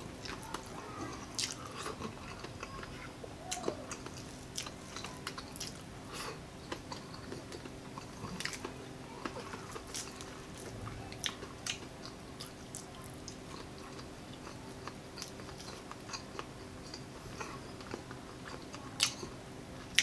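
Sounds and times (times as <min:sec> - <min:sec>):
crunchy chewing: 0:00.2 - 0:20.0.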